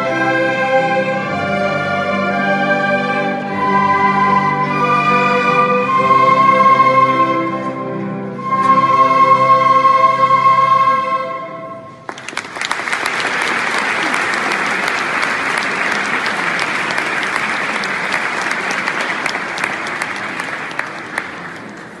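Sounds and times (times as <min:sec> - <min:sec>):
orchestra and choir chord: 0:00.0 - 0:12.0
audience applause: 0:12.0 - 0:22.0.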